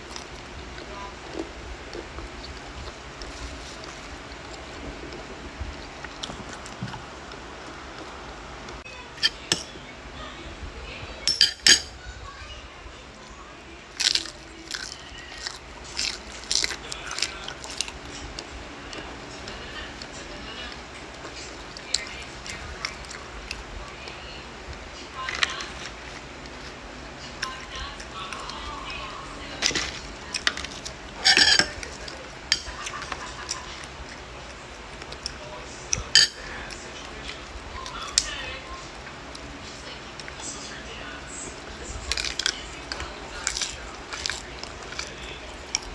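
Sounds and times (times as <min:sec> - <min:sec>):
crisp lettuce crunching: 0:00.0 - 0:08.1, 0:13.8 - 0:45.9.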